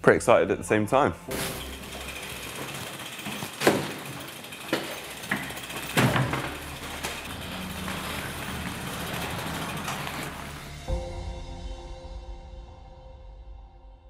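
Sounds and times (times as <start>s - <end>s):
bike knocks and clunks: 1.3s - 10.8s
bicycle hub ratchet clicking: 1.3s - 10.9s.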